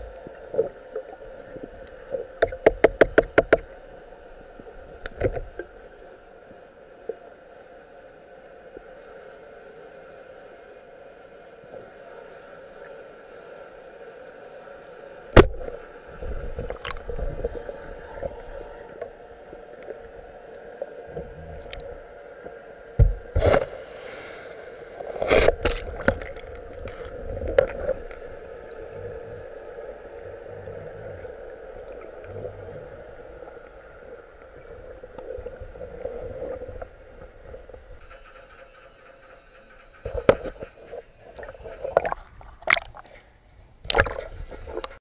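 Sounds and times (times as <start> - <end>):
rushing gurgling water: 24.8 - 43.1, 43.8 - 45.0.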